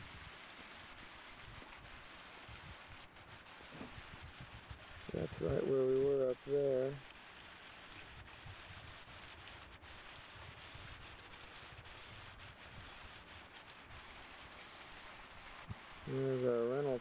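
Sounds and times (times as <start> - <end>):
small waterfall rushing: 0.0 - 17.0
wind rumble on microphone: 1.4 - 6.2, 8.0 - 14.1.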